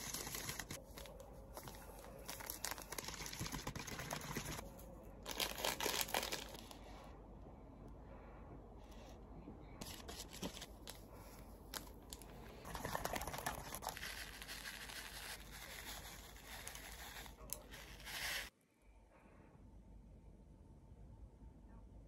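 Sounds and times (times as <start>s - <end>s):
food packaging crinkling: 0.0s - 4.6s, 5.2s - 6.8s.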